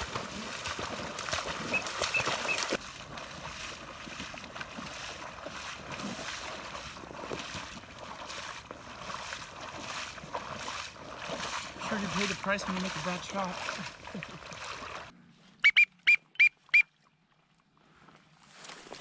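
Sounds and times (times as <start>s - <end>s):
dog splashing through water: 0.0s - 15.1s
person wading with sloshing strides: 0.0s - 15.2s.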